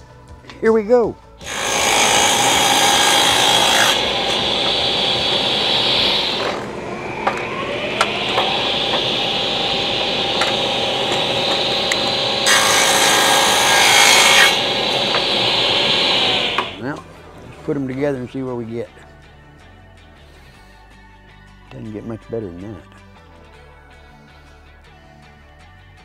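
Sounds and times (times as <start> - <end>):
saw blade cutting wood: 1.4 - 17.1
table saw running: 1.4 - 17.4.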